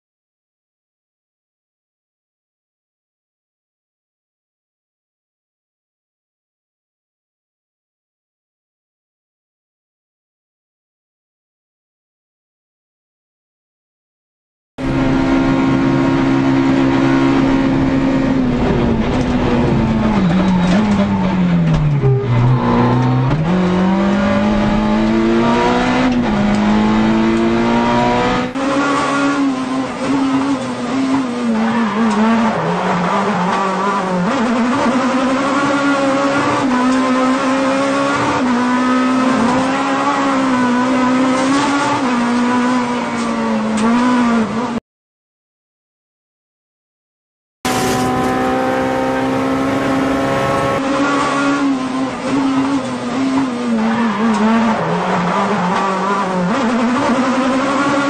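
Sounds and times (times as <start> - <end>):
sports car engine revving: 14.8 - 44.7, 47.7 - 58.0.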